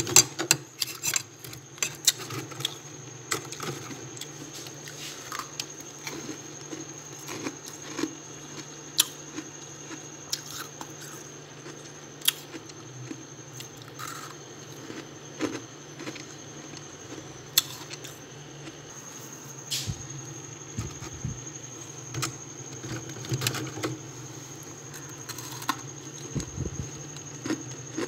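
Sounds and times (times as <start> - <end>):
steady low hum: 0.0 - 28.0
freezer frost crunching: 3.5 - 9.1, 24.8 - 28.0.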